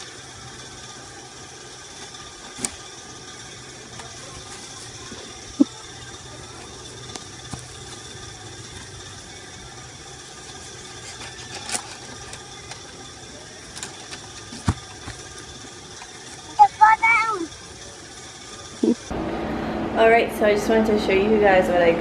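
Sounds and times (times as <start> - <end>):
outdoor background hum: 0.0 - 22.0.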